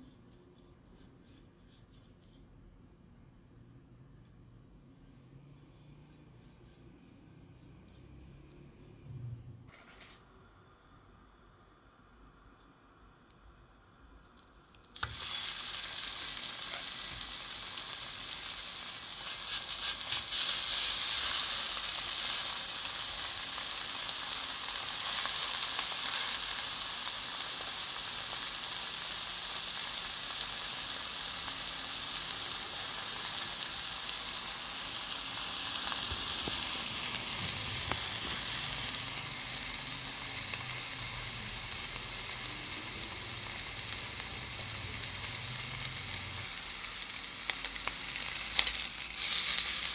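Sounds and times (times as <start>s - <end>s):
meat sizzling in frying pan: 14.8s - 49.9s.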